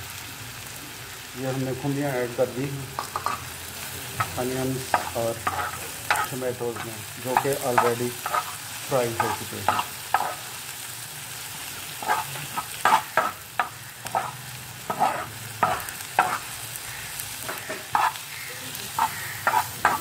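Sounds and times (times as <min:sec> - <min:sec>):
vegetables sizzling: 0:00.0 - 0:20.0
spatula scraping frying pan: 0:03.0 - 0:03.5, 0:04.2 - 0:10.5, 0:11.9 - 0:20.0.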